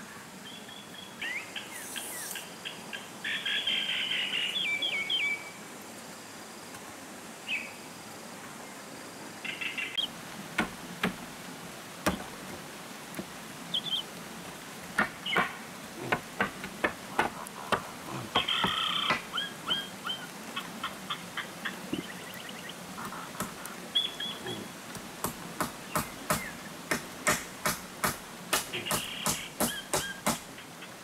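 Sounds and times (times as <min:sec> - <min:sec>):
birds chirping: 0:00.0 - 0:05.7, 0:07.4 - 0:11.4, 0:12.0 - 0:31.0
hammer knocking on bamboo floor: 0:25.2 - 0:30.4.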